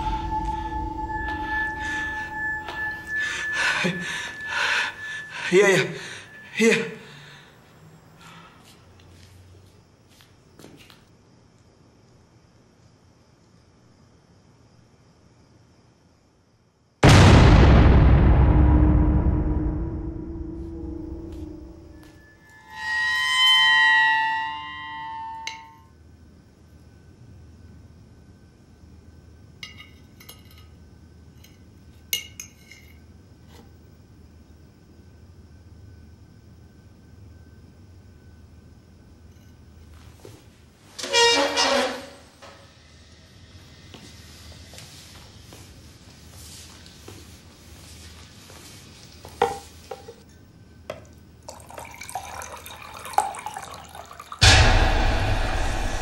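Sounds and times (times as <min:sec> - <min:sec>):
water running into a glass: 0:51.4 - 0:54.4
loud rushing with deep rumble: 0:54.4 - 0:56.0.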